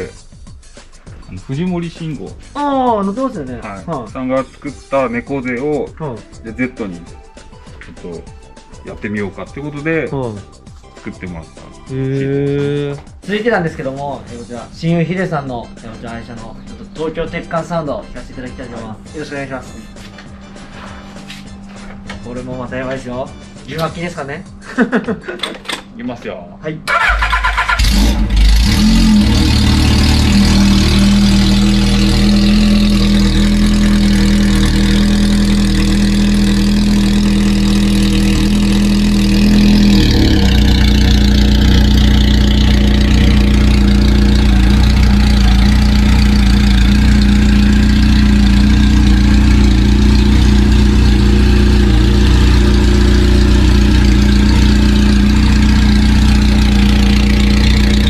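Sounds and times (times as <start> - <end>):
motorcycle engine idling: 27.0 - 58.0.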